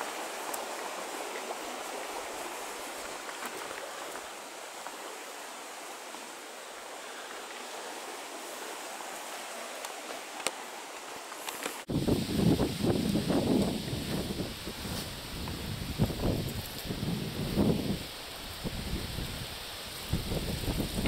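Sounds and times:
river water rushing: 0.0s - 16.4s.

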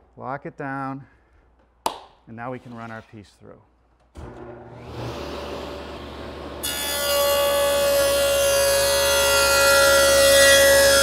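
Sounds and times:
table saw cutting wood: 4.2s - 11.0s.

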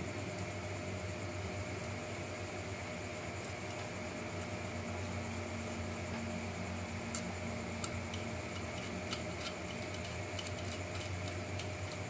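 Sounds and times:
steady low hum: 0.0s - 12.0s
small plastic parts clicking: 7.8s - 12.0s.

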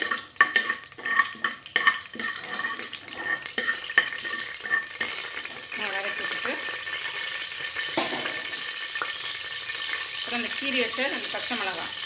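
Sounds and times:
metal ladle scraping pot: 0.0s - 8.7s
spices sizzling in oil: 0.0s - 12.0s.

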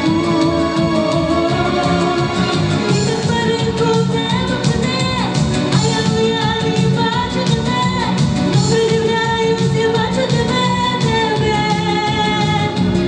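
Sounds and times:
backing music with latin beat: 0.0s - 13.0s
girl singing into a microphone: 2.9s - 12.8s.

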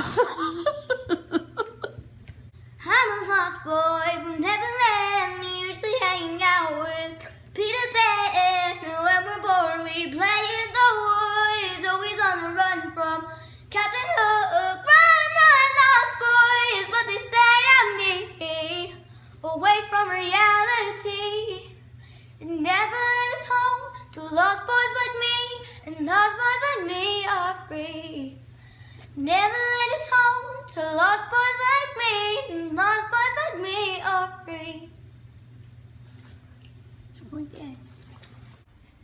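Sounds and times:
girl singing unaccompanied: 2.8s - 21.8s, 22.4s - 28.4s, 29.2s - 35.0s
singer breathing: 22.0s - 22.4s, 28.5s - 29.1s.

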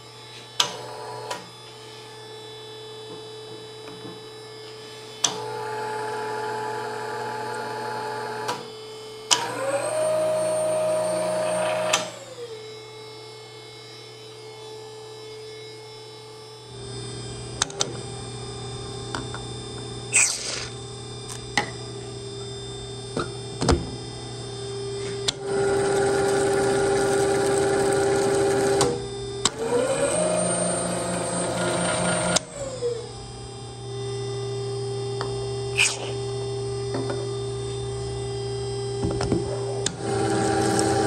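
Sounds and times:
tapping machine motor hum: 25.0s - 33.4s.

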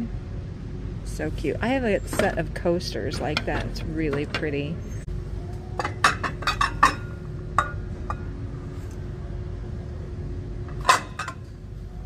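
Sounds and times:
steady low hum: 0.0s - 12.0s
ceramic dishes clinking: 5.8s - 8.2s, 10.8s - 11.4s.

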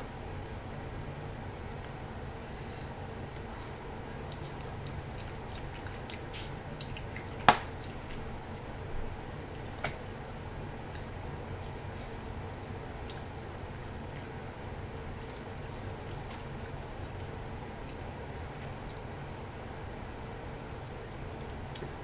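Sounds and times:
chewing: 3.2s - 8.7s, 9.5s - 18.2s.

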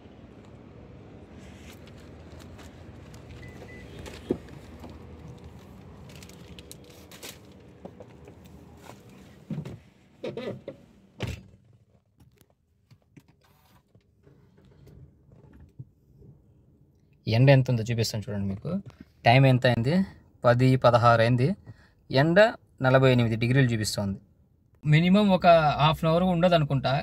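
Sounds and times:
car door opening: 3.1s - 5.4s.

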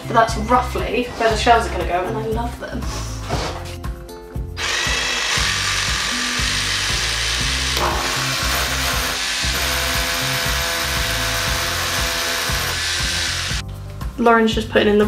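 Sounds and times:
rotary hammer drill boring into wall: 4.6s - 13.6s.

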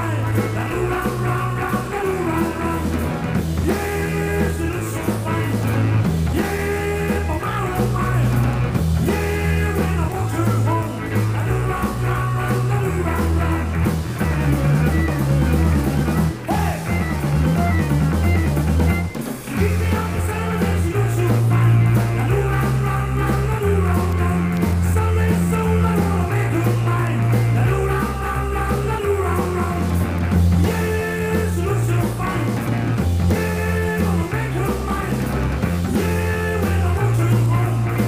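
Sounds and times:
accordions playing up-tempo tune: 14.4s - 19.5s.

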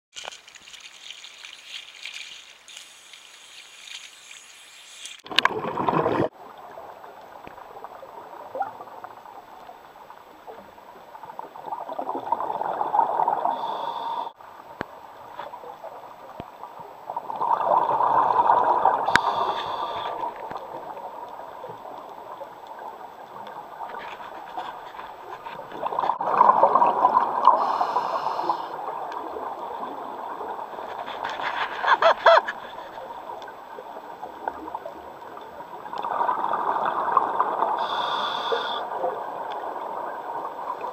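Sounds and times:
underwater exhaled bubbles rattling: 5.2s - 6.9s, 25.7s - 27.6s
regulator hiss: 37.8s - 38.8s.

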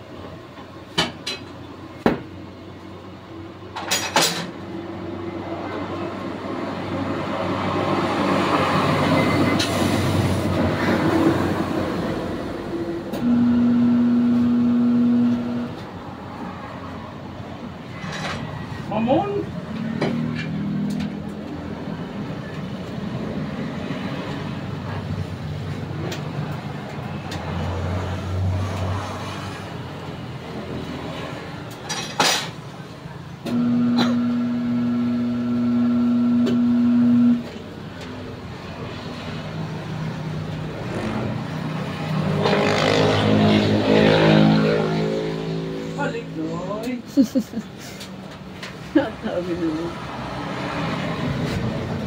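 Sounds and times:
machine motor humming: 13.2s - 15.8s, 33.5s - 37.4s.

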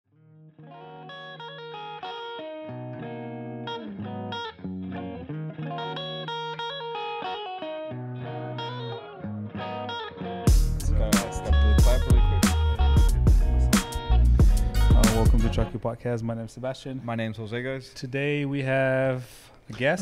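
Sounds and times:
plucked guitar riff: 0.1s - 15.8s
heavy bass and drums: 10.5s - 15.6s.

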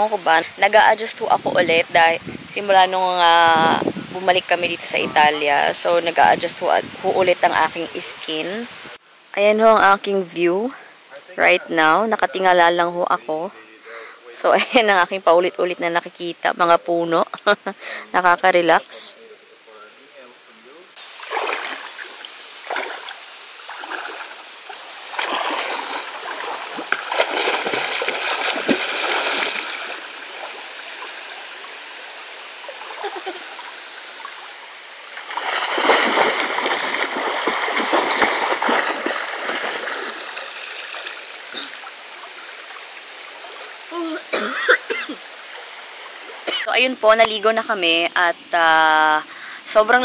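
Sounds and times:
stream flowing: 0.0s - 13.6s, 20.9s - 50.0s
person splashing in water: 21.2s - 31.1s, 35.2s - 41.8s.

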